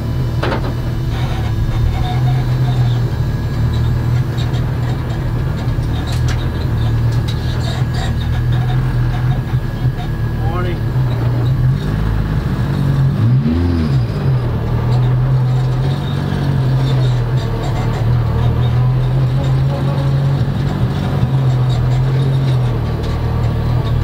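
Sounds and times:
car engine from inside cabin: 0.0s - 24.0s.

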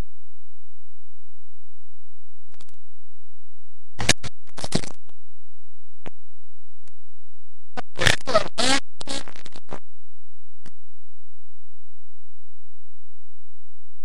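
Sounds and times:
microphone handling scratches: 4.0s - 5.0s, 7.8s - 9.8s.

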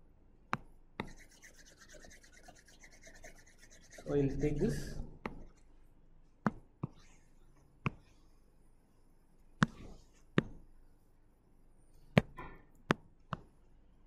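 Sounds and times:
stylus tapping tablet screen: 0.5s - 4.5s, 5.2s - 5.6s, 6.4s - 7.2s, 7.8s - 8.2s, 9.6s - 10.6s, 12.1s - 13.6s
pen tip scratching: 1.0s - 4.5s.

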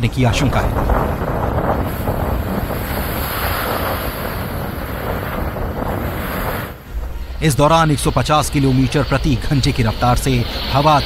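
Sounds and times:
surf breaking on shore: 0.0s - 11.0s
wind buffeting microphone: 0.0s - 11.0s.

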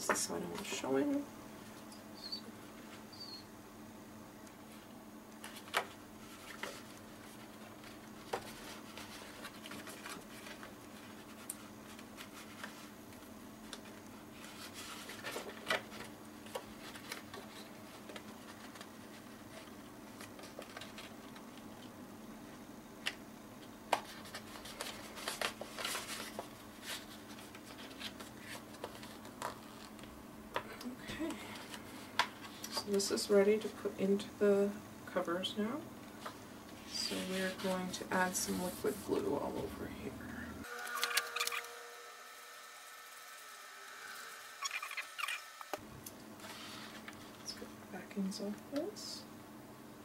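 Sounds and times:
paper rustling and scraping: 5.4s - 13.0s, 13.7s - 21.4s, 23.9s - 30.1s, 40.6s - 41.7s, 46.4s - 47.5s.

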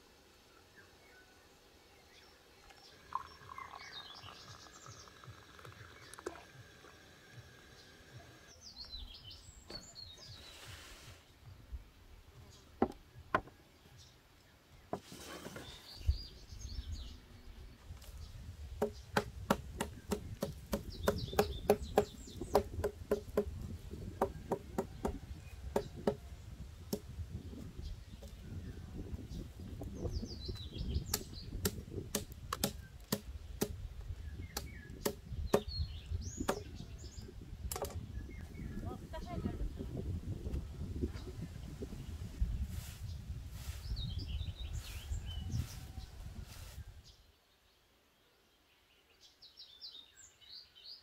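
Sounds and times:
birds chirping: 0.0s - 51.0s
cleaver chopping stalks on wood: 18.7s - 26.2s, 31.0s - 33.8s, 34.5s - 35.7s, 36.4s - 36.7s.

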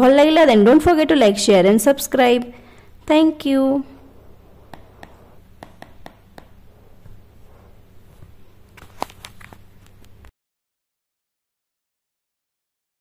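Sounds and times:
low room hum: 0.0s - 10.3s
stylus tapping on tablet screen: 4.6s - 8.4s.

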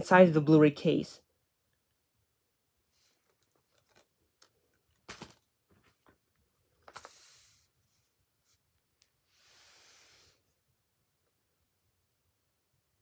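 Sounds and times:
paper rustle: 5.0s - 6.2s.

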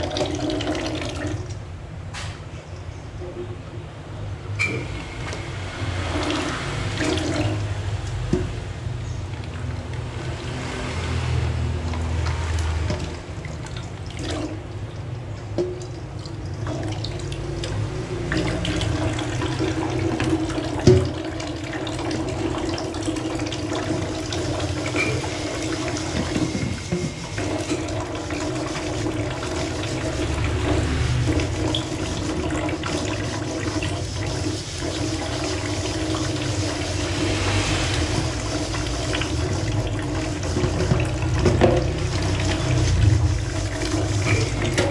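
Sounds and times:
tap water splashing into sink: 11.8s - 14.6s, 15.4s - 36.8s, 39.0s - 44.9s
pot scrubbed with sponge: 17.1s - 44.9s.

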